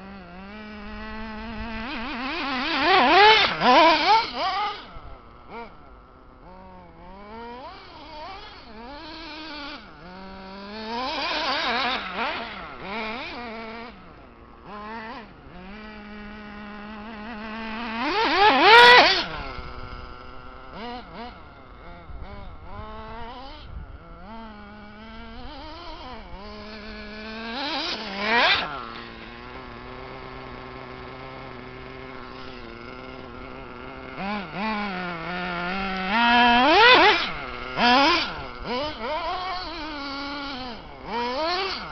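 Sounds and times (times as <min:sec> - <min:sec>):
rc car motor whining: 0:00.0 - 0:41.9.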